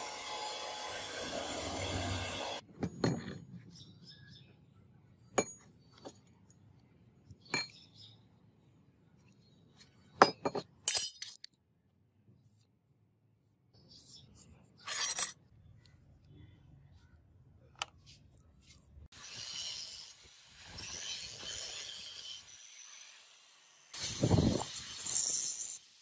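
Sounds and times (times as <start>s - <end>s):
belt sander grinding metal: 0.0s - 2.6s.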